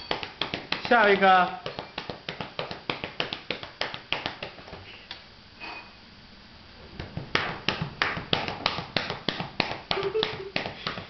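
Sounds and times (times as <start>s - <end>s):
hands patting a cat's back: 0.1s - 4.8s.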